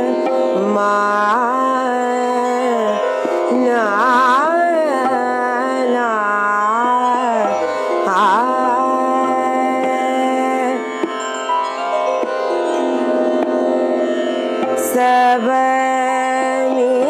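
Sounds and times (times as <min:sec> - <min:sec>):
woman singing: 0:00.0 - 0:11.5, 0:14.6 - 0:17.0
instrumental backing with drone: 0:07.4 - 0:16.4.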